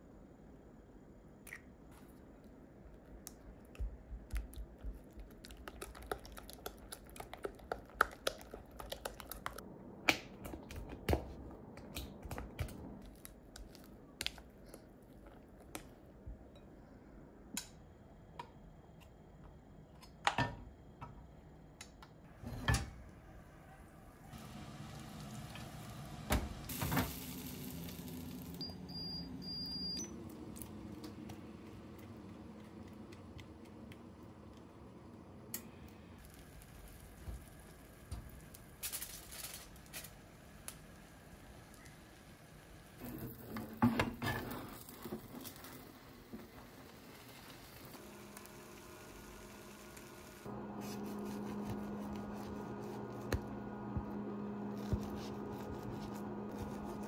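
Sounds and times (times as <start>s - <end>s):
steady hiss: 24.4s - 28.8s.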